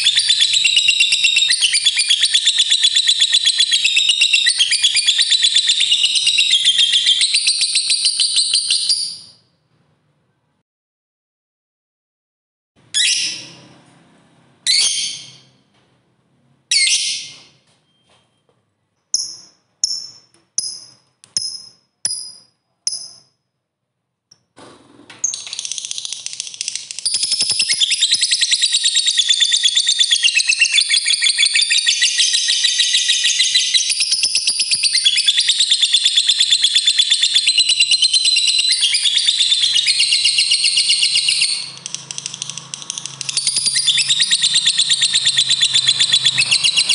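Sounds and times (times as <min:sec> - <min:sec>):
bird chattering trill: 0:25.7 - 0:46.9.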